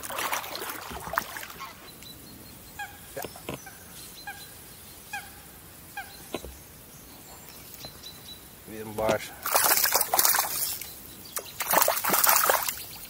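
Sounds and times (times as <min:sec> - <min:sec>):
paddle splashing: 0:00.0 - 0:02.0, 0:09.1 - 0:13.0.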